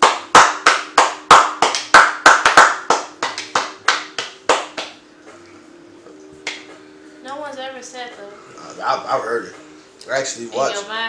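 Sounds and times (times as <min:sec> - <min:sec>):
person clapping hands: 0:00.0 - 0:05.0, 0:06.4 - 0:06.7.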